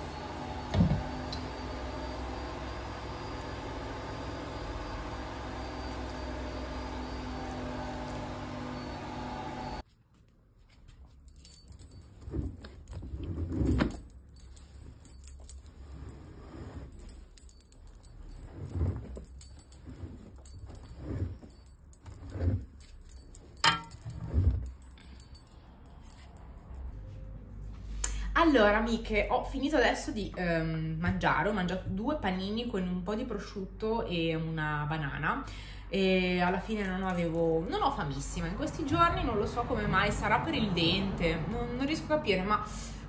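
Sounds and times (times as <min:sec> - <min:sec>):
cloth rustling: 0:09.8 - 0:26.4
knocks and clinks against drum: 0:16.8 - 0:26.2.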